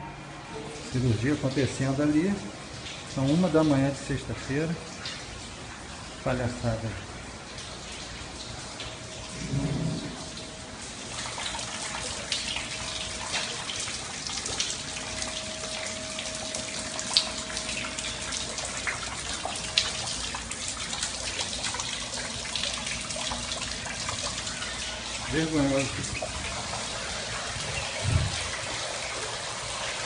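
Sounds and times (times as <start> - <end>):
water running into room: 0.0 - 30.0
water drips: 0.6 - 30.0
faint steady tone: 15.0 - 20.2.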